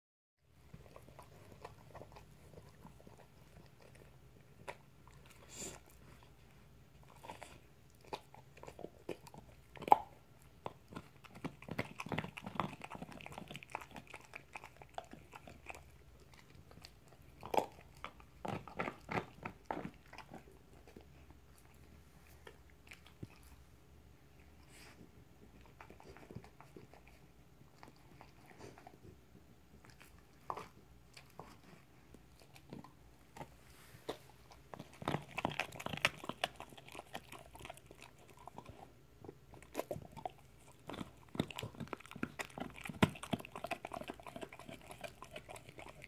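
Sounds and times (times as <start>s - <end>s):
dog licking and gnawing bone: 0.5s - 46.0s
teeth clicking on bone: 7.1s - 20.5s, 34.8s - 46.0s.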